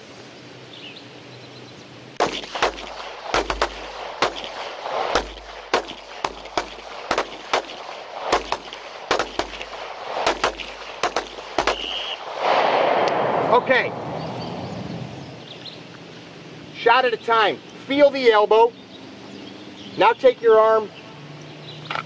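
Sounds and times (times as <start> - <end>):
pistol shots: 2.2 - 13.8.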